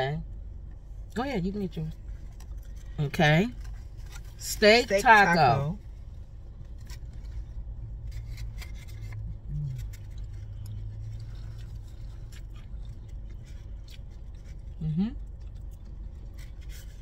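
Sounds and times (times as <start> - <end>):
low steady car hum: 0.0 - 17.0
chewing crunchy taco: 1.9 - 4.4, 5.8 - 17.0
paper wrapper rustling: 5.8 - 12.4.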